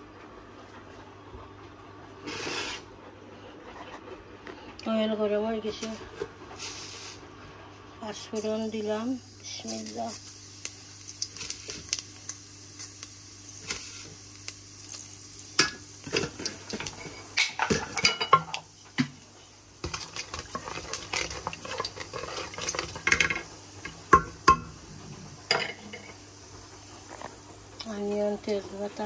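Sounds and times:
spices sizzling in oil: 0:06.6 - 0:07.3, 0:08.0 - 0:29.0
spoon scraping a cooking pot: 0:19.8 - 0:23.4.

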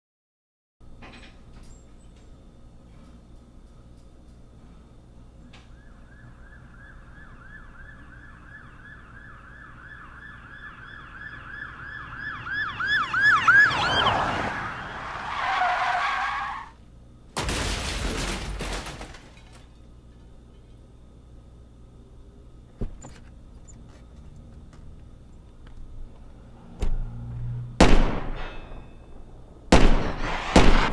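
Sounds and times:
emergency siren passing by: 0:05.6 - 0:16.7.

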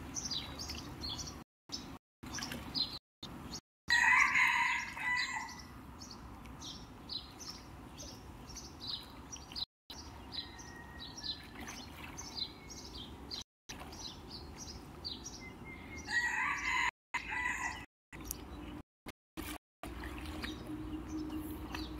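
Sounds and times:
rooster crowing: 0:03.9 - 0:05.6, 0:10.4 - 0:11.5, 0:16.1 - 0:17.9.

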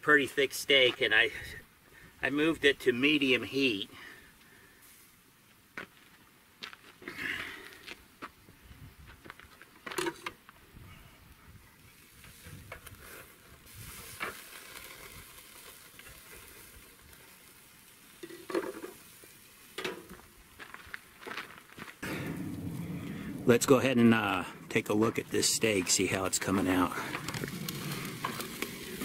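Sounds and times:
steak sizzling on a grill: 0:11.8 - 0:21.3, 0:24.8 - 0:29.0
metal grill lid clanking: 0:22.0 - 0:25.6.

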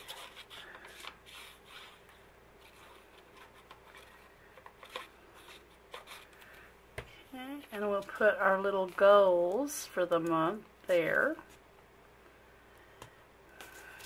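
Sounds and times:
paper and card rustling: 0:00.0 - 0:06.7, 0:07.6 - 0:10.4, 0:13.5 - 0:14.0.

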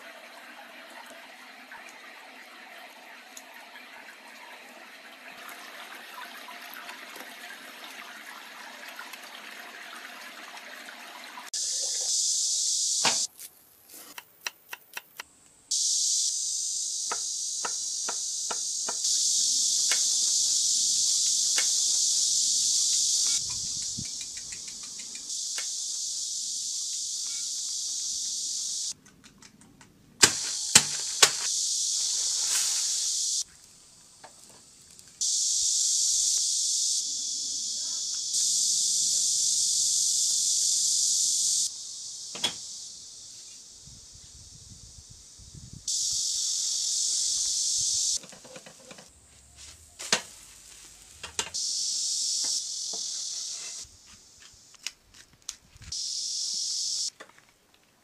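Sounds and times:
stream water flowing: 0:00.0 - 0:12.0
steady high hiss: 0:11.5 - 0:29.0, 0:30.2 - 0:57.2.

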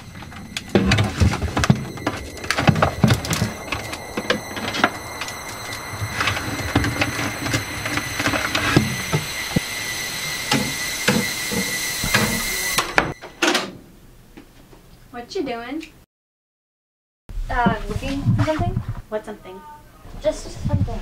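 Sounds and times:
faint high steady tone: 0:00.0 - 0:13.4.

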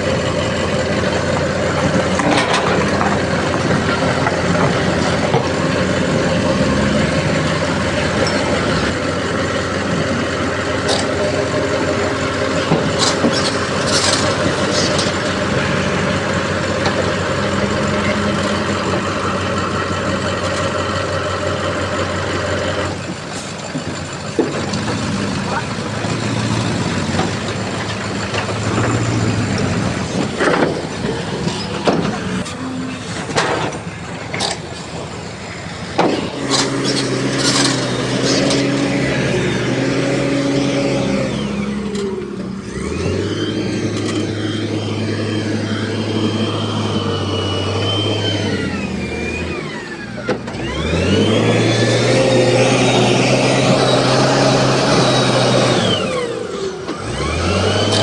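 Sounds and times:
diesel engine revving: 0:00.0 - 0:58.0
sharp knocks and clanks: 0:01.2 - 0:05.9, 0:12.6 - 0:15.3, 0:23.0 - 0:25.1, 0:27.1 - 0:32.5, 0:33.1 - 0:35.1, 0:35.9 - 0:38.8.

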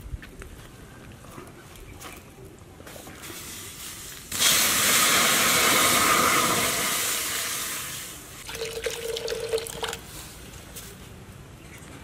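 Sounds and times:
steam hissing in hot wok: 0:03.3 - 0:08.4.

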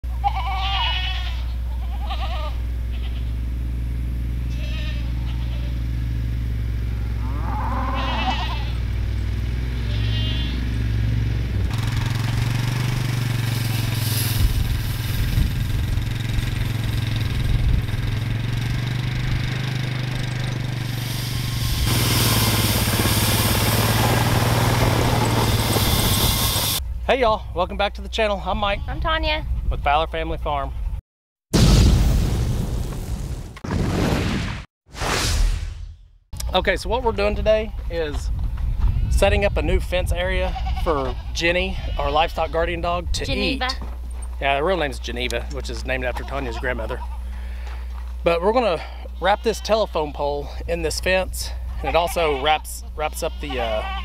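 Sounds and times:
goats bleating: 0:00.1 - 0:03.4, 0:04.4 - 0:05.9, 0:07.2 - 0:08.9, 0:09.7 - 0:10.8, 0:40.2 - 0:42.7, 0:46.0 - 0:47.4, 0:48.6 - 0:50.3, 0:51.7 - 0:54.0
atv engine running: 0:00.1 - 0:28.2, 0:36.4 - 0:54.0
wire panel dragging over grass: 0:12.2 - 0:18.0.

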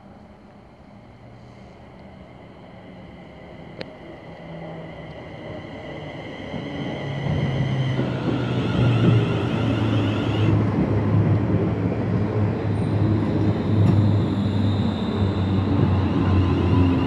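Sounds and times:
train wheels rumbling on rails: 0:00.0 - 0:17.0
high electric whine: 0:12.9 - 0:17.0.

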